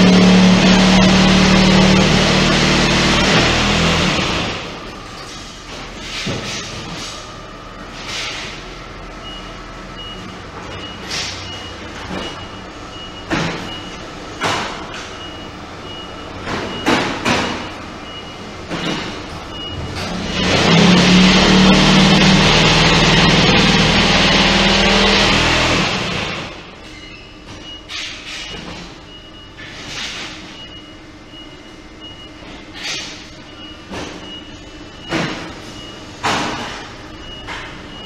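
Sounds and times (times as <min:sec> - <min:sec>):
loud buzzing hum of press: 0:00.0 - 0:07.2, 0:10.1 - 0:26.8
high warning beep: 0:15.1 - 0:17.1, 0:19.5 - 0:19.9.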